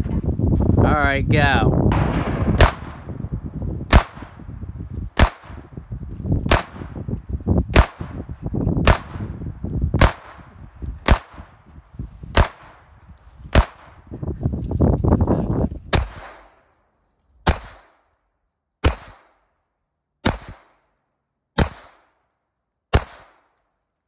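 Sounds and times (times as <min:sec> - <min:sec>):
pistol shots: 0:01.9 - 0:04.5, 0:05.2 - 0:05.7, 0:06.5 - 0:07.0, 0:07.7 - 0:09.4, 0:10.0 - 0:11.6, 0:12.3 - 0:12.8, 0:13.5 - 0:14.0, 0:15.9 - 0:16.6, 0:17.4 - 0:18.0, 0:18.8 - 0:19.4, 0:20.2 - 0:20.8, 0:21.6 - 0:22.2, 0:22.9 - 0:23.5.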